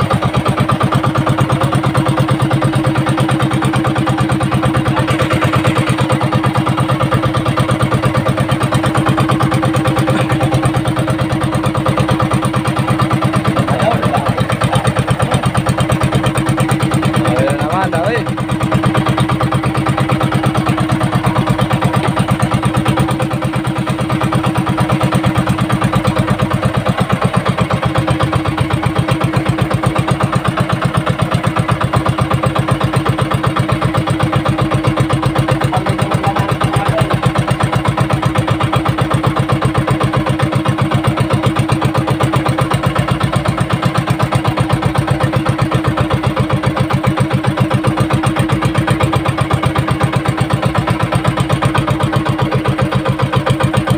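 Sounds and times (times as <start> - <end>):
boat engine chugging: 0.0 - 53.9.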